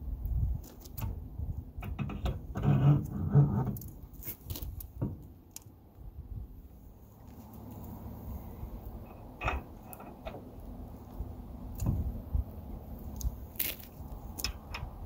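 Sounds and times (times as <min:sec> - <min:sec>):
metal scraping: 0:01.8 - 0:04.5, 0:09.0 - 0:10.7
metal clinks and knocks: 0:09.0 - 0:10.4.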